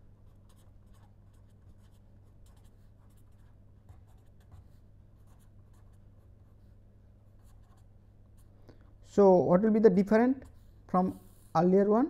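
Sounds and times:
low electrical hum: 0:00.0 - 0:12.0
pen scratching on paper: 0:00.2 - 0:06.6.

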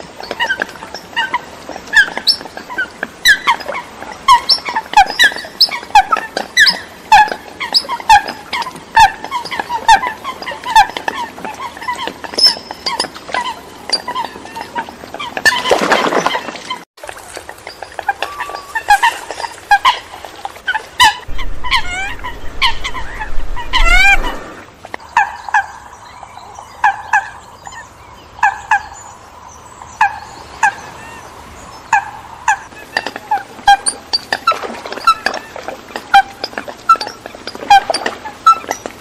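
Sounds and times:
coots calling: 0:17.8 - 0:26.0
low rumble: 0:21.3 - 0:24.7.

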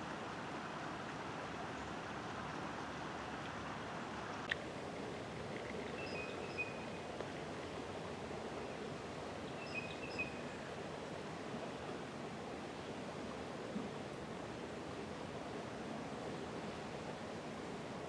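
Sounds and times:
outdoor background hiss: 0:00.0 - 0:18.0
bird chirping: 0:05.9 - 0:06.9, 0:09.6 - 0:10.4.

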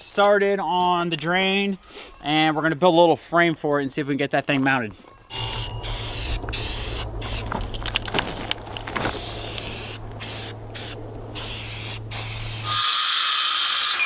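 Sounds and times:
aerosol spray can hissing: 0:05.3 - 0:07.5, 0:09.1 - 0:13.2
circular saw whining: 0:05.3 - 0:07.7, 0:09.2 - 0:14.0.

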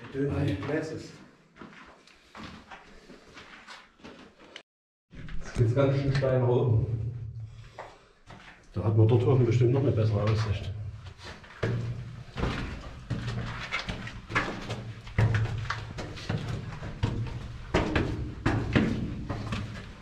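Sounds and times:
footsteps on mountain path: 0:00.0 - 0:04.6, 0:09.8 - 0:20.0.

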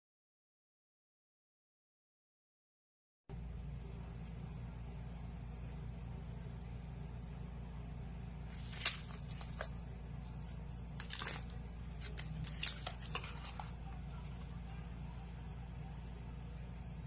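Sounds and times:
paper crinkling and rustling: 0:08.5 - 0:14.6.

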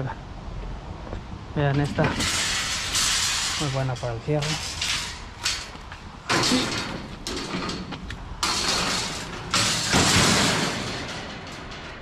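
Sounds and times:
metal clatter: 0:01.6 - 0:12.0
scrap metal rattling and scraping: 0:01.6 - 0:12.0.

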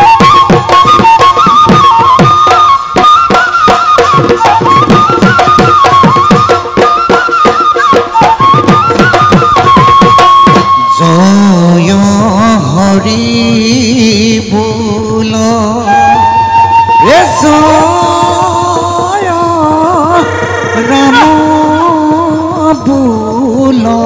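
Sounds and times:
high wind instrument melody: 0:00.0 - 0:12.1, 0:15.4 - 0:22.9
drums beating fast rhythm: 0:00.0 - 0:15.9, 0:16.6 - 0:24.0
men singing: 0:10.9 - 0:16.2, 0:17.0 - 0:24.0.

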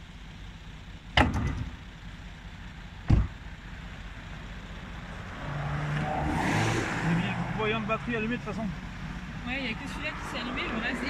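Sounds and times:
low steady rumble: 0:00.0 - 0:06.2
vehicle doors slamming: 0:01.1 - 0:01.8, 0:03.0 - 0:03.5.

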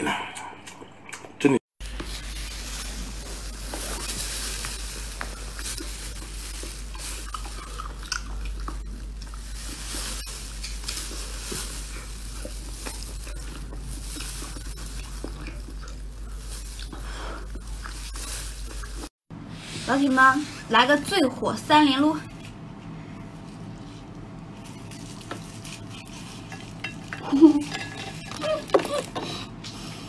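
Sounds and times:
steady low hum: 0:00.0 - 0:30.0
person chewing with wet smacking: 0:03.5 - 0:19.1.

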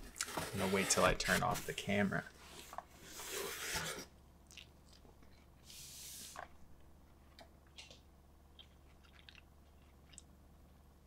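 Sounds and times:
low steady hum: 0:00.0 - 0:11.0
chewing pizza crust: 0:04.5 - 0:05.5, 0:08.5 - 0:10.9.

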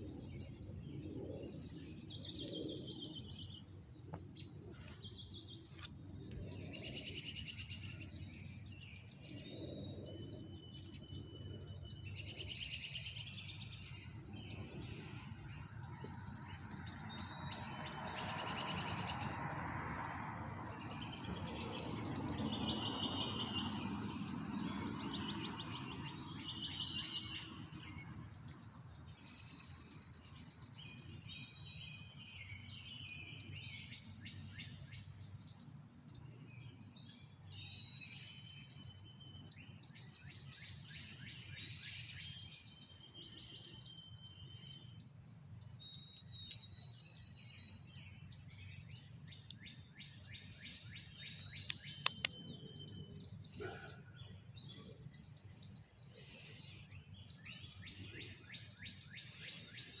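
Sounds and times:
small birds chirping and whistling: 0:00.0 - 1:00.0
sharp clicks: 0:51.6 - 0:52.4.

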